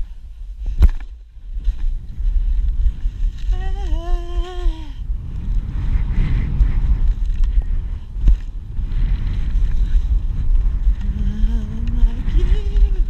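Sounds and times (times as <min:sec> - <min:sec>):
wind buffeting microphone: 0:00.0 - 0:13.0
person holding long vocal note: 0:03.5 - 0:05.0, 0:11.0 - 0:13.0.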